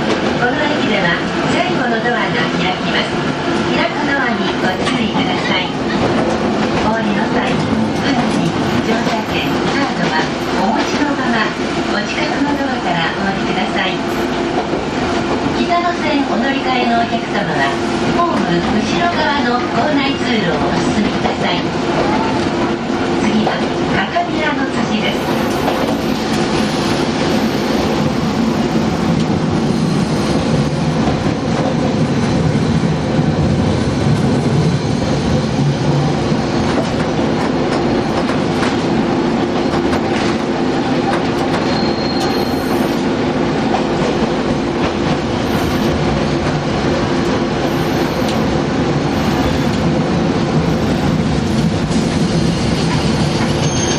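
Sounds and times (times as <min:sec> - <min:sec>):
tram motor hum: 0:42.2 - 0:53.6.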